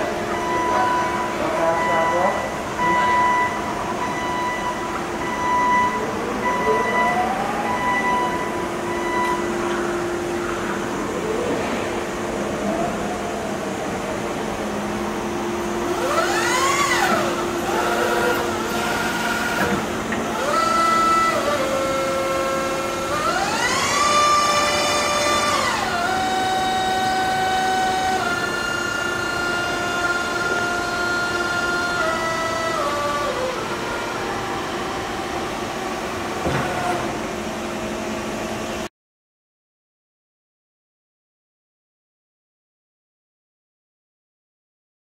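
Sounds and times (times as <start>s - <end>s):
forklift electric motor whining: 12.4s - 38.5s.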